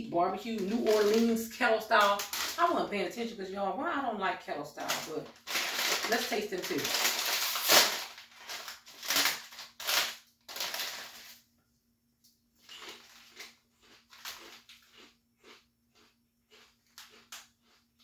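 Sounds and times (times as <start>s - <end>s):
foil chip bag crinkling: 0.3s - 3.4s, 4.7s - 11.4s, 12.6s - 18.0s
crunchy chewing of chips: 0.4s - 2.7s, 4.8s - 11.4s, 12.6s - 18.0s.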